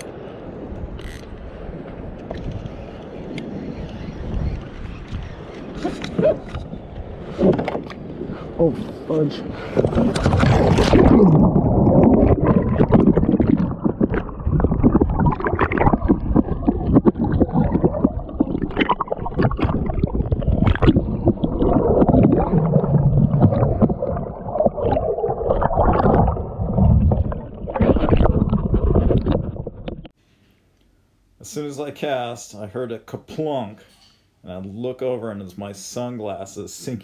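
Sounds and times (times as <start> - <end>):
underwater churning and gurgling: 3.4 - 30.2
knocks and thuds underwater: 7.3 - 8.0, 9.7 - 30.2
splash into water: 9.8 - 29.5.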